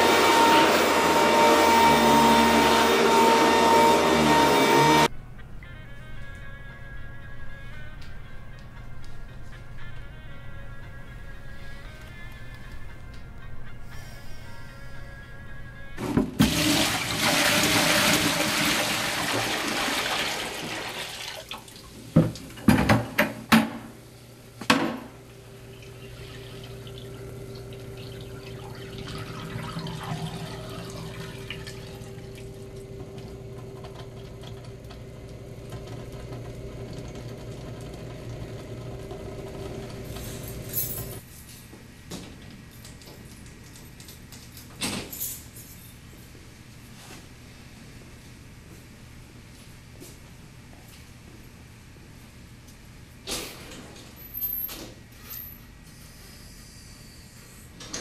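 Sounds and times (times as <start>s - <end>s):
water pouring into drain: 16.4s - 21.9s, 25.8s - 32.8s
water draining: 16.4s - 22.6s, 25.6s - 33.3s.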